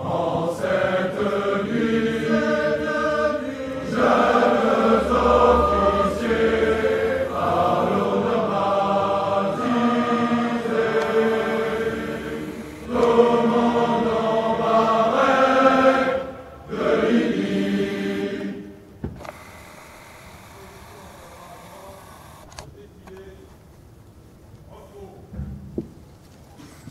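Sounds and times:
choir singing a cappella: 0.0 - 19.0.

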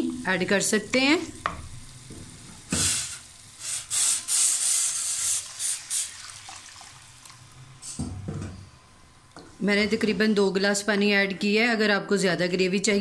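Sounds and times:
water hissing in a hot pan: 0.0 - 8.0.

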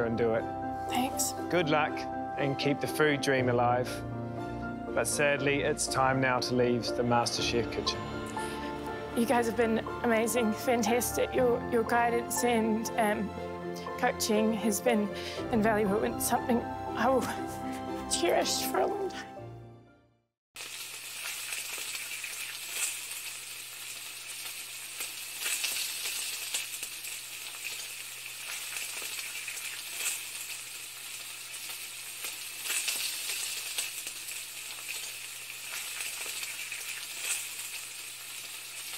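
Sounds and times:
sizzling crackle with pops: 0.9 - 1.8, 20.6 - 38.9.

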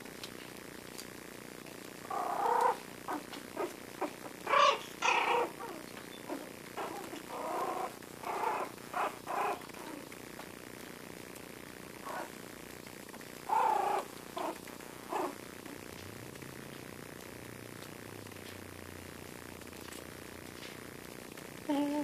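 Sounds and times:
puppies play-growling: 2.0 - 10.5, 12.0 - 12.5, 13.1 - 18.7.

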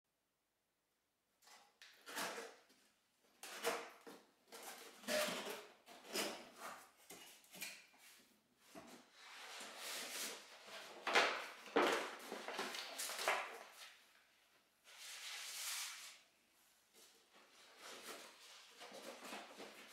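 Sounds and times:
cardboard and paper rustling: 3.4 - 14.0, 16.9 - 19.9.

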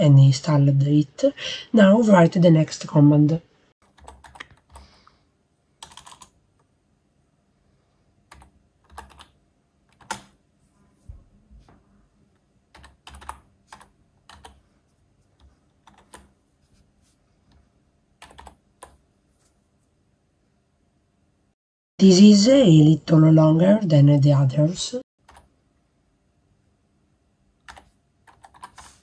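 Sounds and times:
typing on computer keyboard: 3.8 - 5.0, 5.8 - 6.4, 8.3 - 10.4, 12.7 - 14.6, 15.4 - 16.4, 18.2 - 19.0, 25.2 - 25.5, 27.6 - 28.9.

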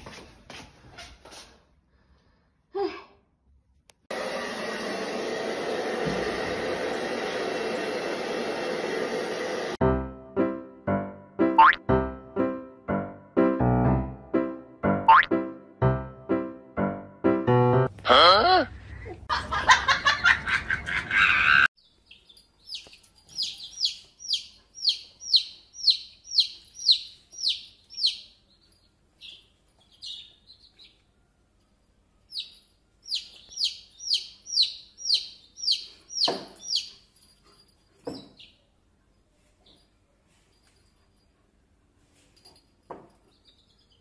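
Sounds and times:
chick peeping: 22.1 - 28.2, 33.1 - 36.9.

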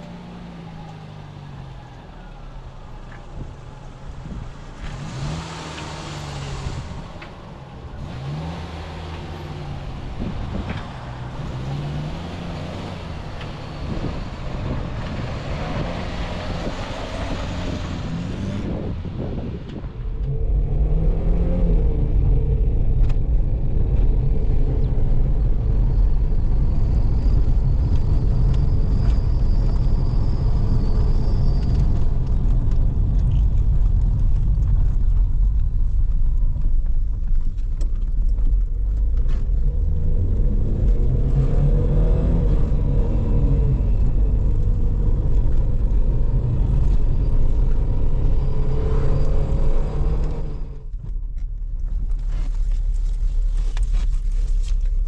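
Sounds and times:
car engine rumble: 0.0 - 55.0
road noise: 0.0 - 55.0.

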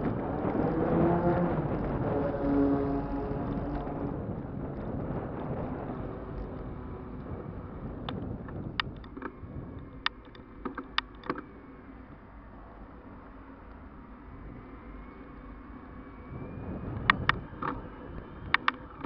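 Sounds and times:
wind on microphone: 0.0 - 12.3, 14.0 - 19.0
bike and camera mount rattling: 8.0 - 11.5.

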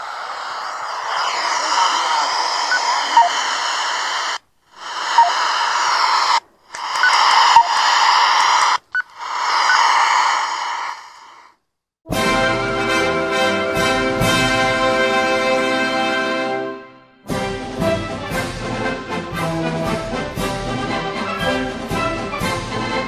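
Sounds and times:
radio static hiss: 0.0 - 11.6.

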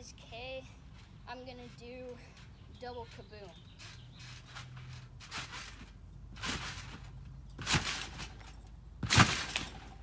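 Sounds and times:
body landing on trampoline: 5.2 - 10.0.

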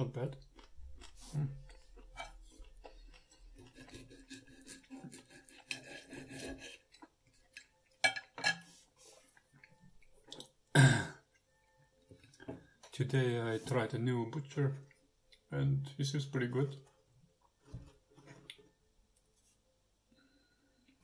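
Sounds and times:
cutlery scraping on a plate: 8.0 - 8.8.

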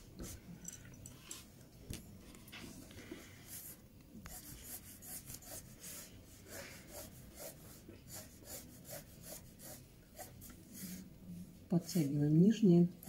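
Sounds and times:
pencil drawing on paper: 3.4 - 11.1, 11.8 - 12.3.

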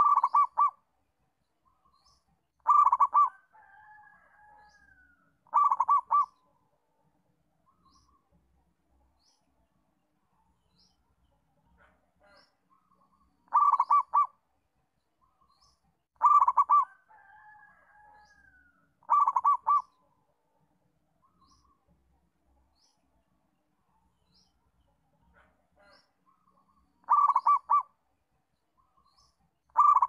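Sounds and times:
dove cooing: 0.0 - 0.8, 2.6 - 3.5, 5.4 - 6.4, 13.5 - 14.4, 16.2 - 17.4, 19.0 - 19.9, 27.0 - 27.9, 29.7 - 30.0
small birds chirping: 0.0 - 30.0.

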